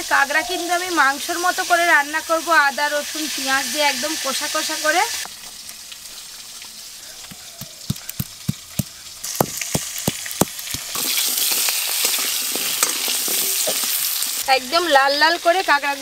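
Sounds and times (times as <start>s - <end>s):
food sizzling in hot oil: 0.0s - 16.0s
stone pestle knocking on stone: 7.3s - 11.0s.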